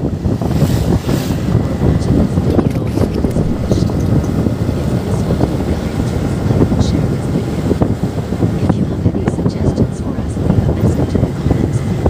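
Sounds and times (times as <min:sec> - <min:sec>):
road and traffic noise: 0:00.0 - 0:12.0
wind buffeting microphone: 0:00.0 - 0:12.0
motorcycle rumble: 0:00.1 - 0:06.8.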